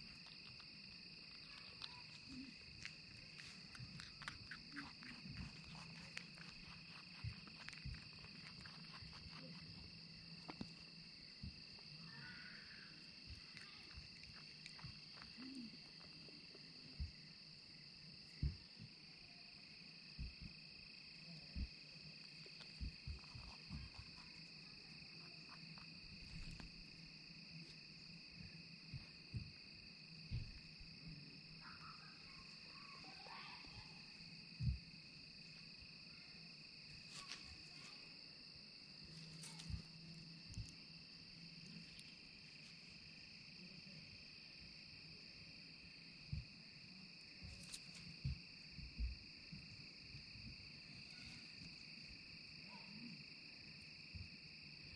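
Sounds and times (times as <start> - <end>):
insects chirring: 0.0 - 54.9
rabbits bumping the microphone: 22.4 - 26.8.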